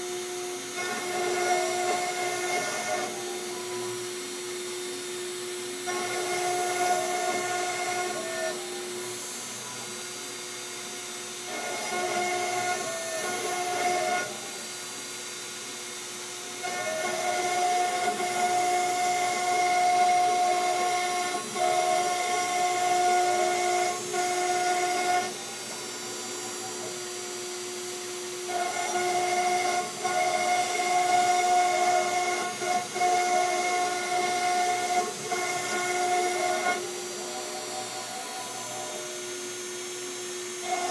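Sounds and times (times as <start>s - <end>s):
stepper motors whirring: 0.0s - 4.2s
router spindle whining: 0.0s - 40.9s.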